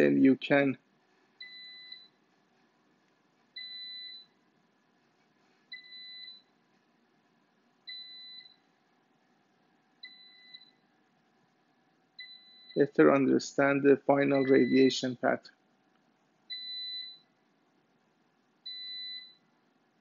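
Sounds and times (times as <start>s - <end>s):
high electronic beeps: 14.3s - 15.0s.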